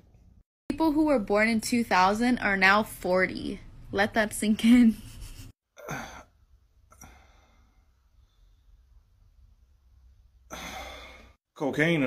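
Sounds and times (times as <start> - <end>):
faint breathing: 6.9 - 9.0, 10.5 - 11.4.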